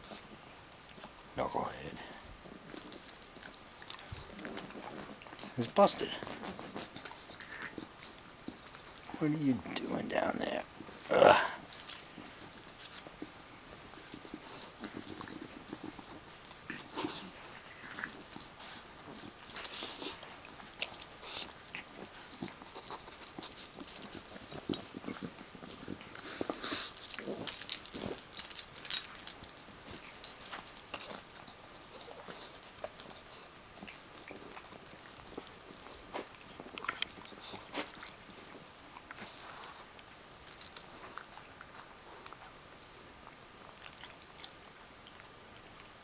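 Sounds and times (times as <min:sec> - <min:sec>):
puppy chewing a toy: 0:10.6 - 0:46.0.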